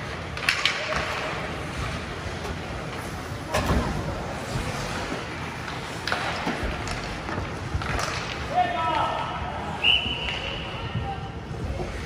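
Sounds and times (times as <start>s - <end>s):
steady wash of rink noise: 0.0s - 9.8s
hockey sticks and puck knocking: 0.1s - 1.6s, 5.0s - 9.0s.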